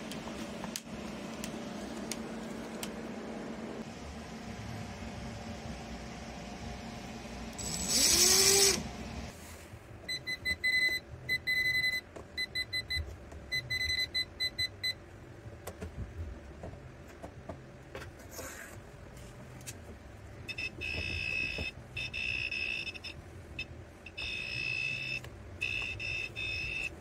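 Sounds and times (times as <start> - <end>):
high buzzing alarm: 20.5 - 26.9
voltage tester beeping: 20.5 - 27.0.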